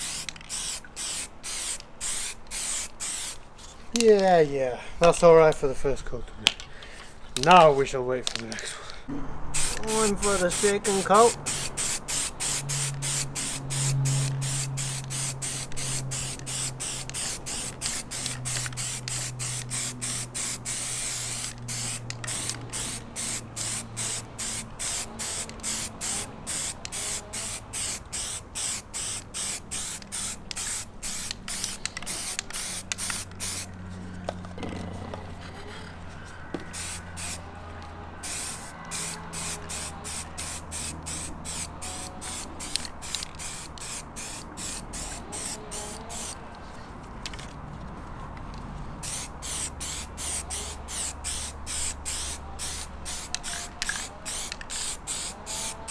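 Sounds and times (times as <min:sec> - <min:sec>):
aerosol spray can hissing: 0:00.0 - 0:03.4, 0:09.5 - 0:33.7, 0:36.7 - 0:37.4, 0:38.2 - 0:46.4, 0:49.0 - 0:55.9.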